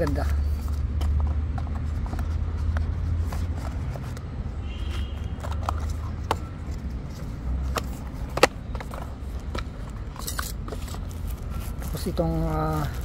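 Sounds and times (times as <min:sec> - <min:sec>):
packaging clicks and taps: 0:04.9 - 0:13.0.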